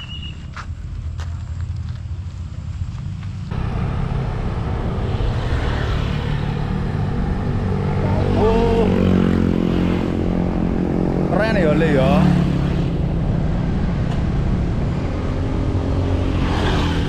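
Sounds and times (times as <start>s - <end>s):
bicycle tyres rumbling: 0.0s - 10.2s.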